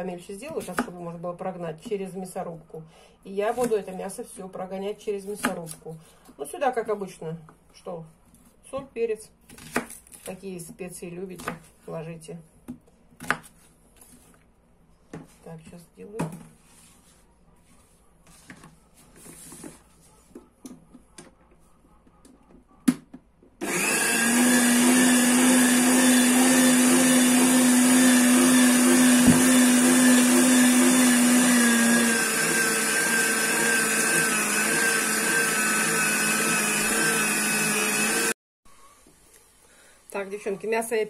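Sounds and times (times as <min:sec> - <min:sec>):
electric meat grinder running: 0:23.6 - 0:38.4.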